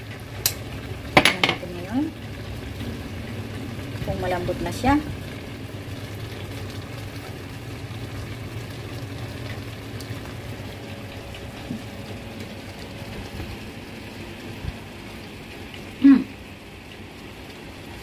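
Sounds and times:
kitchen exhaust fan hum: 0:00.0 - 0:18.0
meat bubbling in oil: 0:00.0 - 0:18.0.

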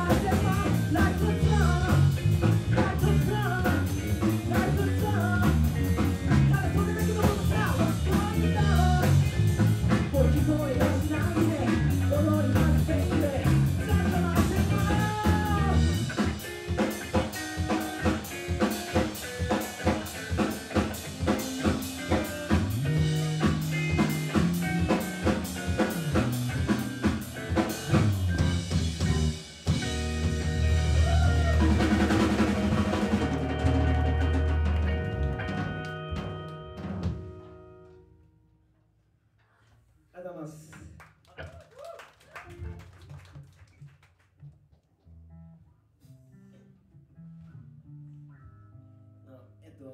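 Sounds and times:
live funk rock band playing: 0:00.0 - 0:37.8.

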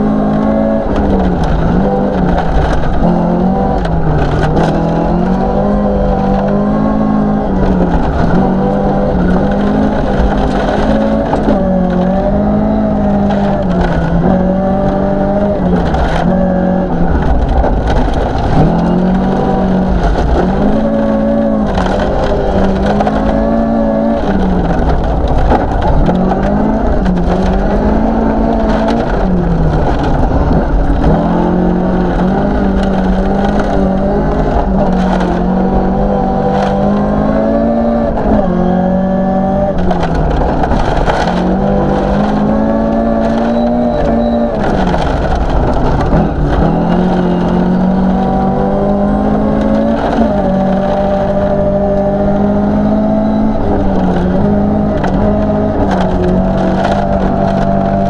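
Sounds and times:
car engine revving: 0:00.0 - 0:58.0
gravel crunching under tyres: 0:00.0 - 0:58.0
stones rattling against car underside: 0:17.1 - 0:35.6.

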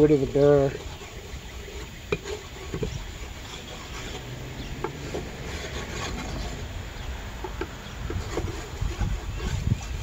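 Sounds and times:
stone scraping on metal: 0:00.0 - 0:06.8.

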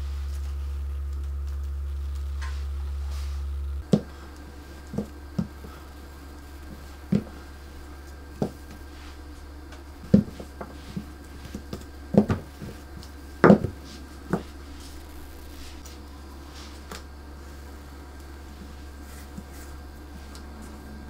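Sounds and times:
steady low hum: 0:00.0 - 0:21.0
hands patting sheet soft thumps: 0:03.8 - 0:05.8, 0:06.6 - 0:15.0.

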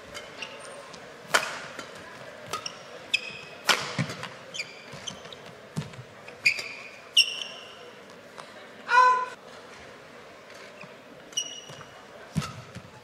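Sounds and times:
shoes squeaking on court: 0:00.0 - 0:08.2, 0:10.6 - 0:13.0
racket striking shuttlecock: 0:01.3 - 0:02.8, 0:03.6 - 0:04.4.

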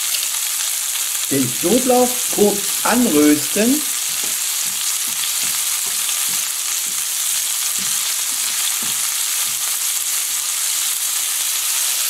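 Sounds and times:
fish and garlic sizzling in pan: 0:00.0 - 0:12.0
spatula scraping and tapping pan: 0:03.9 - 0:09.8.

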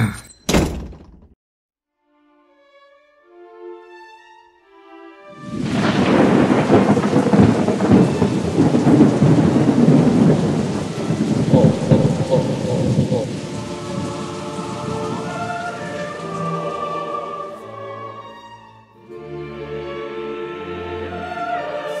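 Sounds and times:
music: 0:01.8 - 0:07.1, 0:13.4 - 0:22.0
thunder rumbling: 0:05.4 - 0:17.3
heavy rain: 0:05.4 - 0:18.1.

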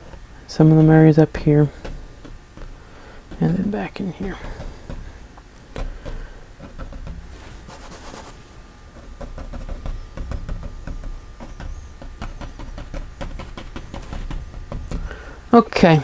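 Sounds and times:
painting tools tapping and clicking: 0:05.8 - 0:07.2, 0:08.9 - 0:15.3.

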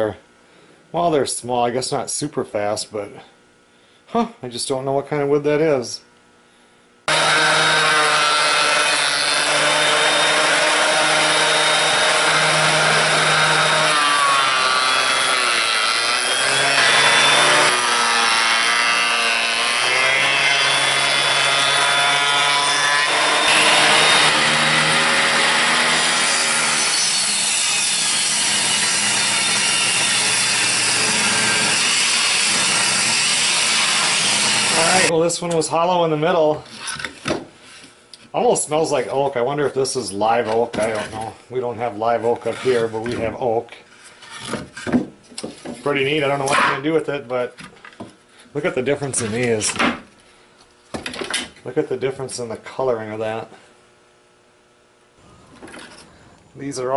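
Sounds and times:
jointer planing wood: 0:07.1 - 0:35.1
table saw ripping wood: 0:07.1 - 0:35.1.

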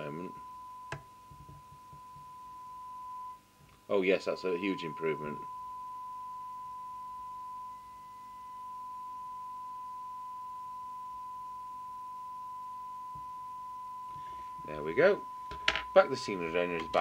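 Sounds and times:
radio speaker test tone: 0:00.0 - 0:17.0.

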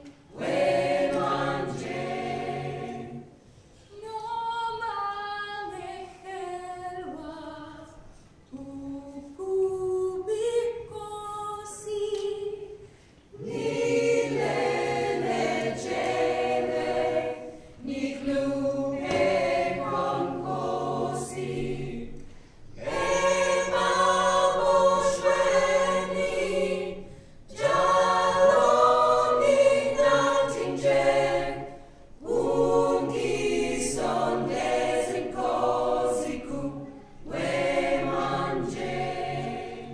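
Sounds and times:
a cappella choir singing: 0:00.0 - 0:39.9.

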